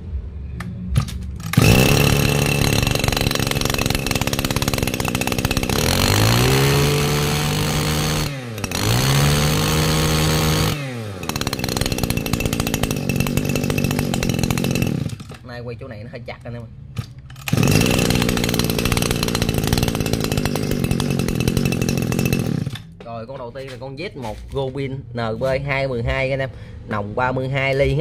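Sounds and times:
brush-cutter engine revving: 0:01.4 - 0:15.5, 0:17.2 - 0:23.0.

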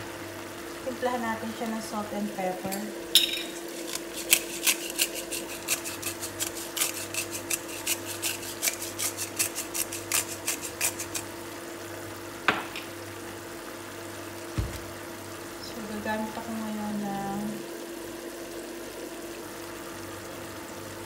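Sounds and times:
cooktop hum: 0:00.0 - 0:21.0
pepper mill clicking: 0:03.7 - 0:11.3.

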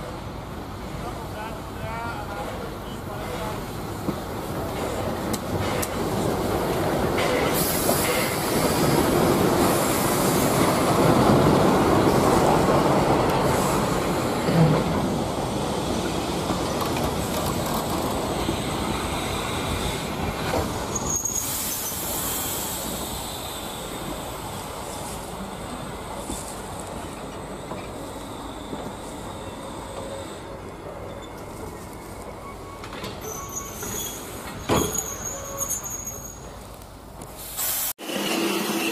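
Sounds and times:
train wheels rumbling on track: 0:00.0 - 0:38.9
high-pitched wheel squeals: 0:32.4 - 0:36.6.

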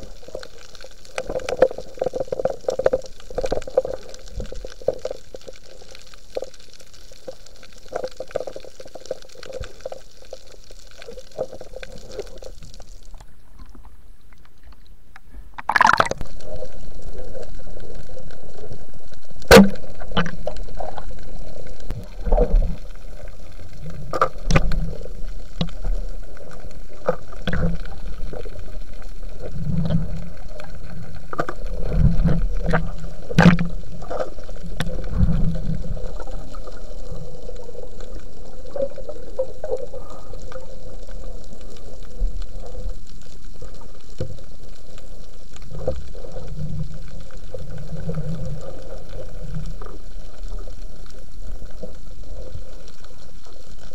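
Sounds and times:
muffled underwater water movement: 0:00.0 - 0:53.9
sharp underwater clicks and knocks: 0:19.4 - 0:20.6, 0:24.1 - 0:25.9, 0:31.3 - 0:33.8.

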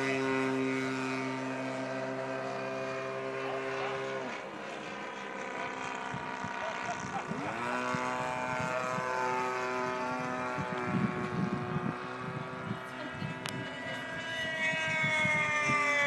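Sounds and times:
model airplane engine whining: 0:00.0 - 0:16.0.

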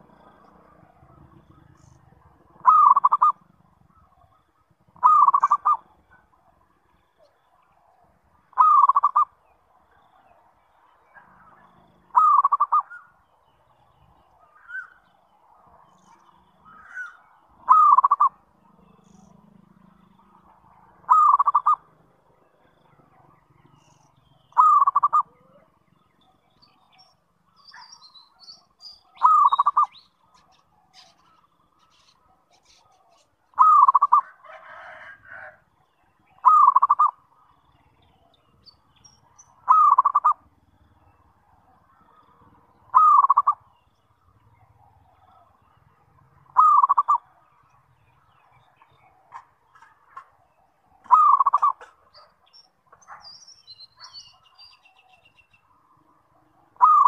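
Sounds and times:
dove cooing: 0:00.0 - 0:06.6, 0:08.5 - 0:09.4, 0:12.1 - 0:13.1, 0:16.7 - 0:18.4, 0:20.4 - 0:21.9, 0:24.6 - 0:25.8, 0:29.1 - 0:31.4, 0:32.0 - 0:35.6, 0:36.3 - 0:37.2, 0:39.6 - 0:40.6, 0:41.9 - 0:43.6, 0:46.4 - 0:47.4, 0:50.9 - 0:52.4, 0:56.7 - 0:57.0.

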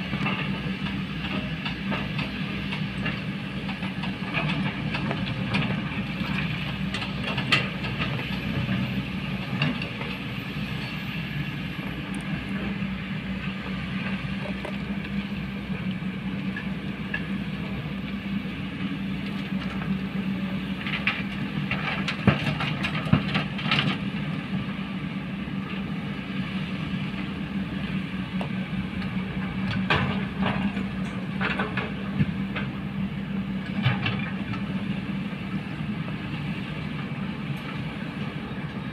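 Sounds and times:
excavator diesel engines running: 0:00.0 - 0:38.9.

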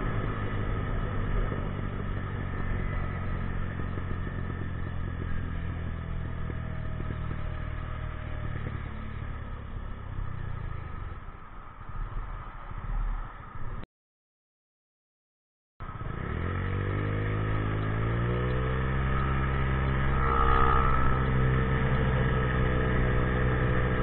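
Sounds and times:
scooter engine running: 0:00.0 - 0:11.1, 0:15.9 - 0:24.0.

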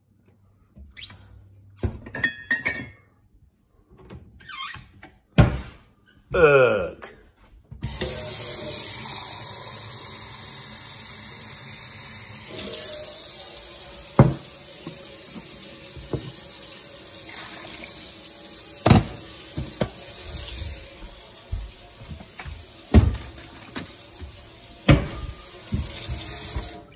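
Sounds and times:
tap water running into sink: 0:07.8 - 0:26.9.

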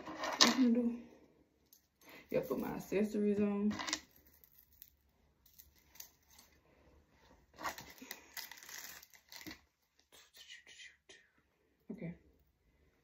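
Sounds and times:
jewelry clicking and rattling: 0:03.7 - 0:06.6, 0:07.6 - 0:09.7.

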